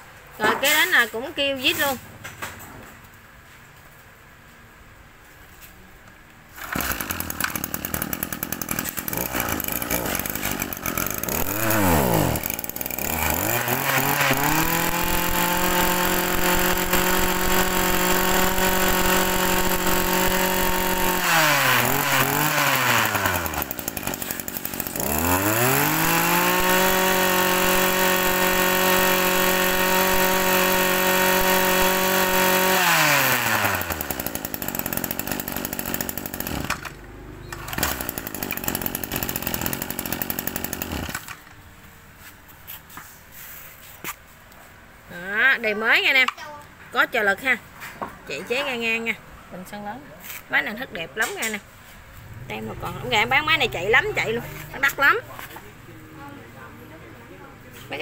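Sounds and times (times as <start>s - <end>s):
brush cutter engine revving: 6.5s - 41.5s, 52.2s - 55.6s.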